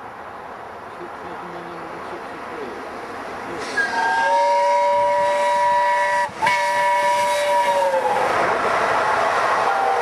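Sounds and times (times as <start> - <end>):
train rushing past: 0.0 - 10.0
steam locomotive whistle: 3.6 - 8.3.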